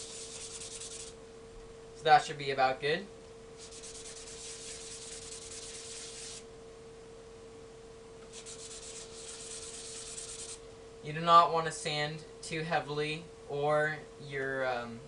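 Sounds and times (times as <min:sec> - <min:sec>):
plastic rubbed on wet sandpaper: 0:00.0 - 0:01.2, 0:03.6 - 0:06.4, 0:08.3 - 0:10.6.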